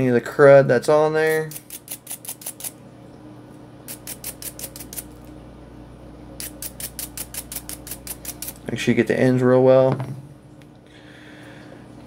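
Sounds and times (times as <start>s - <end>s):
brush scrubbing metal spring: 6.4s - 8.6s.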